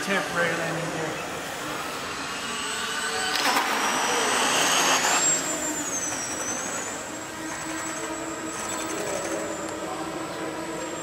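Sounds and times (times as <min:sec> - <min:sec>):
rush of noise: 0:00.0 - 0:10.2
electric model plane motor whine: 0:00.0 - 0:11.0.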